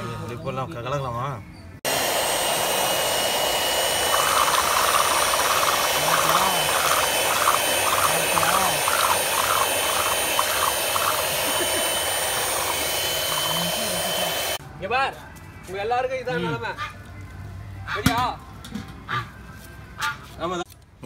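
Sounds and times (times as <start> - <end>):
electric hand mixer whirring: 1.9 - 14.6
beaters whipping eggs in bowl: 3.5 - 14.6.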